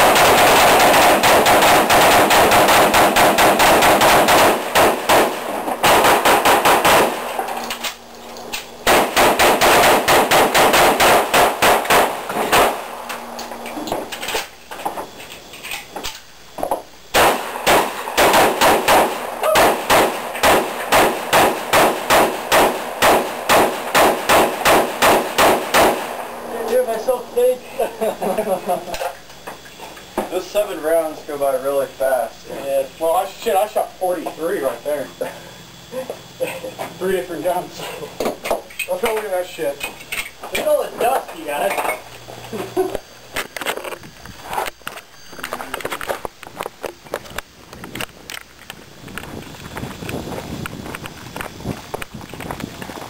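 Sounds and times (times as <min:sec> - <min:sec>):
rapid semi-automatic gunfire: 0:00.0 - 0:07.5, 0:08.8 - 0:13.0, 0:17.1 - 0:26.3.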